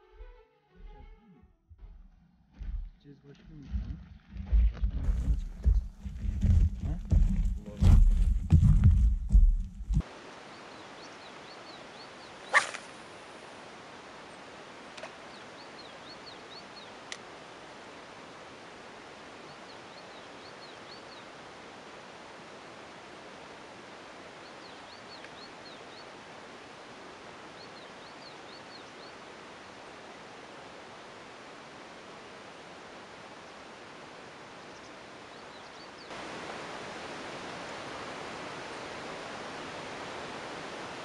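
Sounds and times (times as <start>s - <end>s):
steady outdoor hiss: 2.5s - 41.0s
faint bird chirps: 10.4s - 13.3s
fishing rod swishing through cast: 12.5s - 13.0s.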